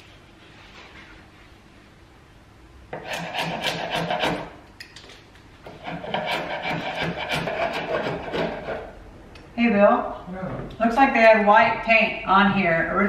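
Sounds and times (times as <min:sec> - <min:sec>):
chisel scraping paint off wood: 0:03.0 - 0:04.5, 0:05.7 - 0:08.9.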